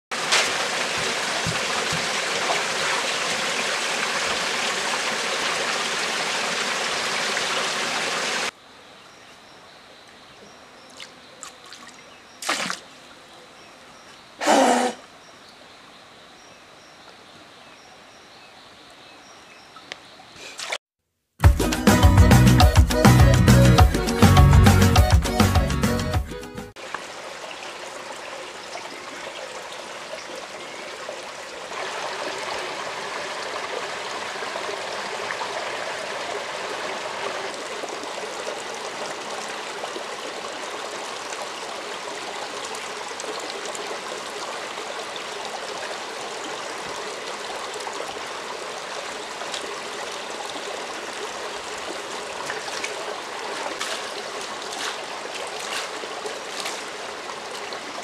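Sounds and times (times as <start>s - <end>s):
hands splashing in water: 0.1s - 3.2s, 11.0s - 12.9s, 52.4s - 57.8s
shallow stream running: 0.1s - 20.8s, 26.7s - 58.0s.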